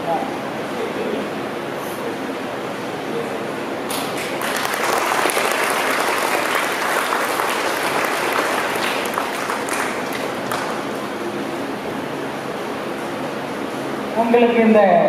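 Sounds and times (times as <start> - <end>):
audience applauding: 3.9 - 11.1.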